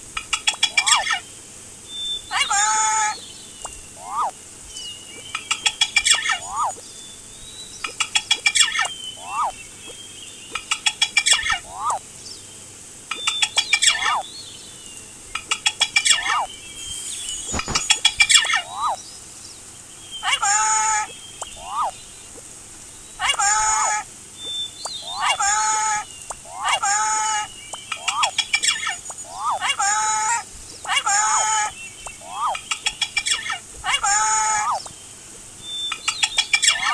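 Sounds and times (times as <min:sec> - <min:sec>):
rattling bird calls: 0:00.2 - 0:01.2, 0:02.3 - 0:06.8, 0:07.8 - 0:09.6, 0:10.5 - 0:12.0, 0:13.1 - 0:14.2, 0:15.4 - 0:19.0, 0:20.2 - 0:22.2, 0:23.2 - 0:35.0, 0:35.8 - 0:36.9
rising and falling bird note: 0:04.0 - 0:04.3.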